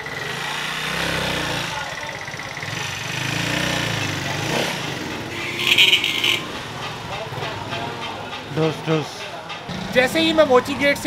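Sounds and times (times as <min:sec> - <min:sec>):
small engine running: 0:00.0 - 0:06.4
street traffic: 0:00.0 - 0:11.0.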